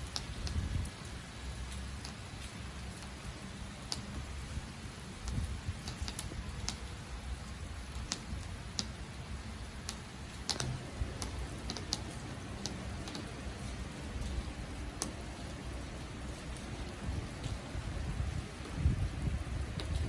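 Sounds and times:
drops ticking on wet tabletop: 0.0s - 0.7s, 5.2s - 6.9s, 7.8s - 9.1s, 9.7s - 15.6s, 16.4s - 17.7s, 19.7s - 20.0s
light rain: 0.0s - 20.0s
steady low rumble: 9.5s - 20.0s.

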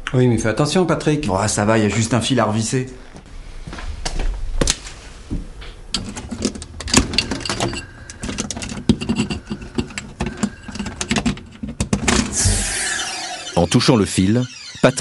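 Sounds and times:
screwdriver working: 12.2s - 15.0s.

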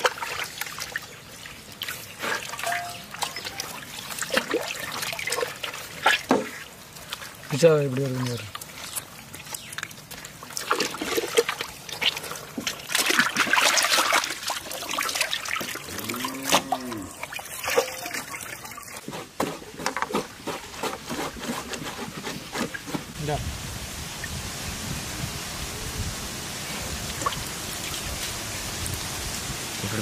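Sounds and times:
water splashing in metal basin: 0.0s - 19.0s, 27.0s - 29.0s.

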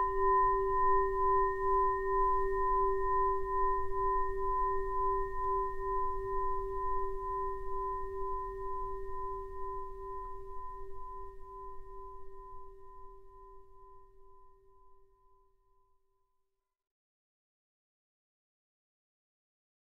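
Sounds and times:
singing bowl ringing: 0.0s - 15.6s.

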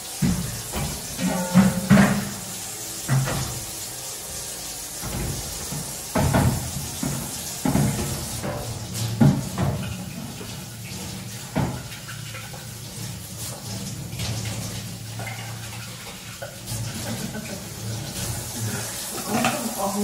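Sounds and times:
tap water running into sink: 0.0s - 20.0s.

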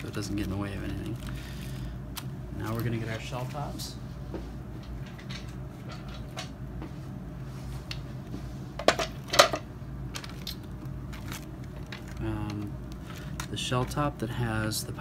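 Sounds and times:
low steady hum: 0.0s - 15.0s
plastic shell being handled: 10.1s - 14.0s.

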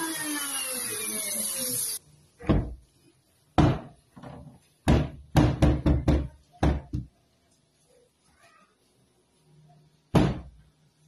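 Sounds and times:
power drill whining: 0.0s - 2.0s.

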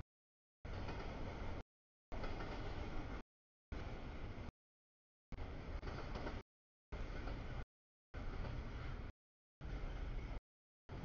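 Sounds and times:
train wheels rumbling on rails: 0.7s - 3.2s, 5.4s - 6.4s, 7.0s - 7.6s, 8.2s - 11.0s.

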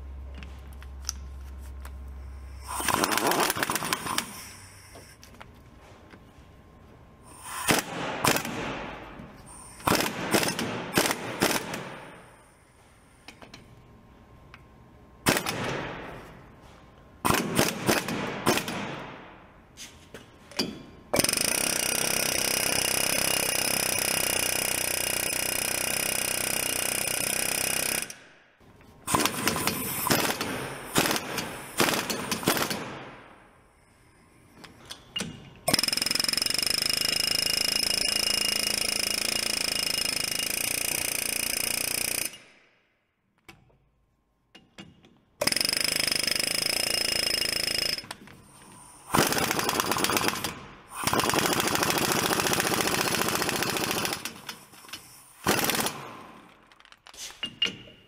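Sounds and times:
air tool whirring: 2.2s - 5.3s, 7.2s - 13.4s, 21.2s - 28.3s, 45.4s - 56.5s
impact wrench hammering: 44.6s - 48.3s.

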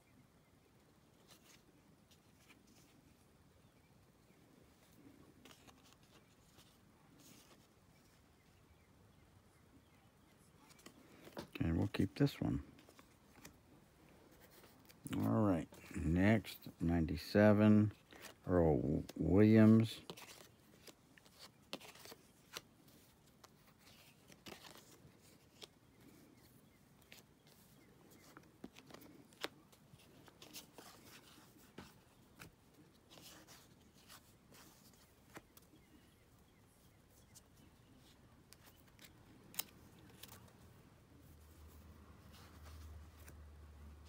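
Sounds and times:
cards clicking and rustling: 1.1s - 3.2s, 4.7s - 8.2s, 10.6s - 36.4s, 37.2s - 44.0s.

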